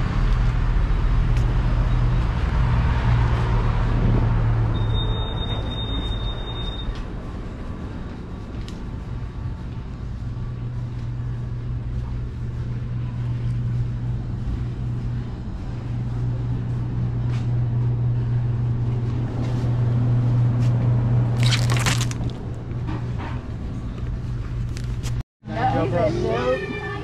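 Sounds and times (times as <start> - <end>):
crackling: 21.4 - 22.4.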